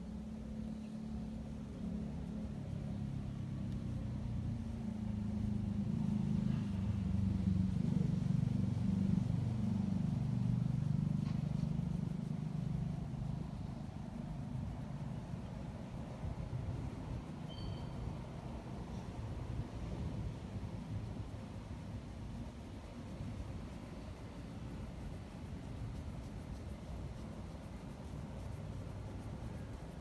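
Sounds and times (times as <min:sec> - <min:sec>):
cat purring: 0:00.5 - 0:17.1.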